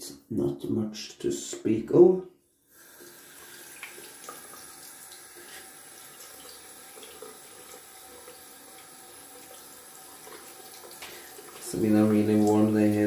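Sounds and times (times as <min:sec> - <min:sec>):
sink tap running: 0:02.8 - 0:13.0.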